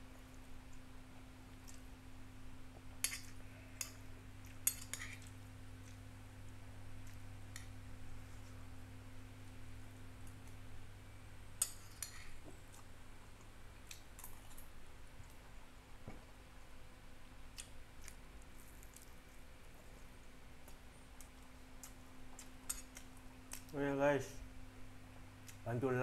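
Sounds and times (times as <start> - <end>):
faint low hum: 0.0 - 26.0
quiet chewing: 0.2 - 1.9, 2.7 - 8.7, 11.6 - 15.7, 17.5 - 23.8, 25.1 - 25.7.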